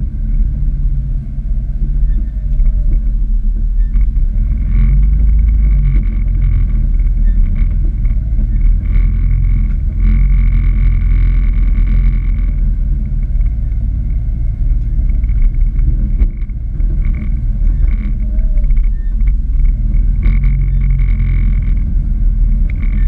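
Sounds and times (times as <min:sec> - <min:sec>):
engine idling low rumble: 0:00.0 - 0:23.0.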